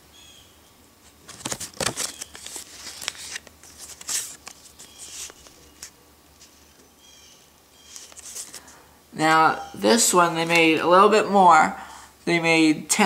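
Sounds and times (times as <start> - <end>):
plastic coin sleeve crinkling: 1.1 - 5.9, 7.9 - 8.8.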